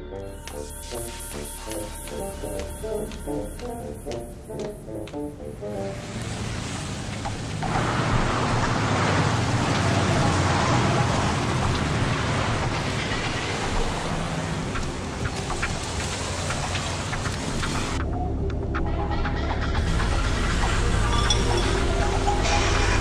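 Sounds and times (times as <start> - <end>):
faint clicks: 0.4 - 5.4
traffic noise: 1.1 - 23.0.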